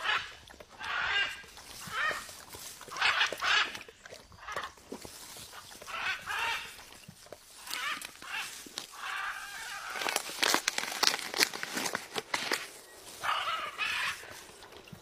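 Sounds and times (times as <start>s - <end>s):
macaw calling: 0.0s - 4.7s, 5.6s - 7.0s, 7.6s - 11.0s, 12.4s - 14.6s.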